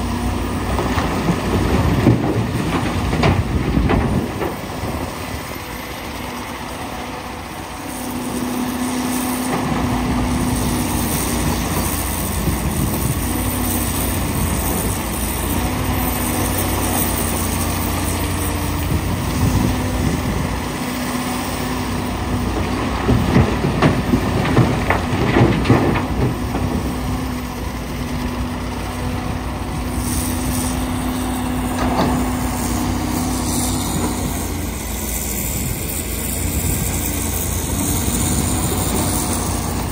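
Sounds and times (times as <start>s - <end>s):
excavator diesel engine under load: 0.0s - 39.9s
clattering rock: 0.7s - 5.2s, 22.5s - 27.4s.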